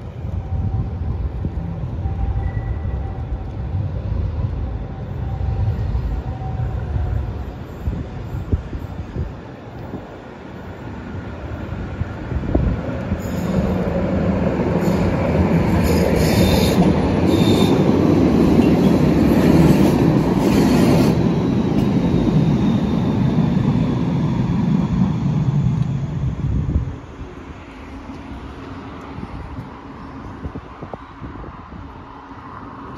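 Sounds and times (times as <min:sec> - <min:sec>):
tram passing: 0:00.0 - 0:32.9
high wheel squeal: 0:13.2 - 0:13.9, 0:14.8 - 0:24.4.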